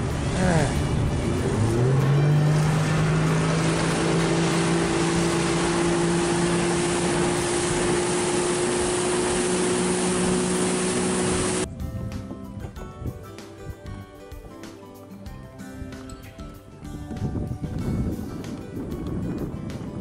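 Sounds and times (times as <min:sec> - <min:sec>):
boat motor running: 0:00.0 - 0:11.7
rush of wind and water: 0:00.0 - 0:14.0, 0:16.8 - 0:20.0.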